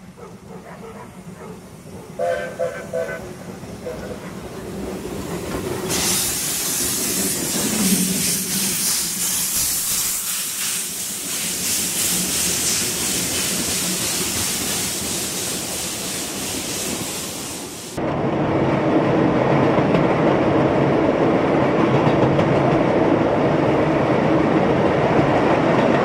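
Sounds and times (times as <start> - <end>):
steam locomotive hissing: 0.0 - 18.0
carriages rolling on rails: 0.0 - 26.0.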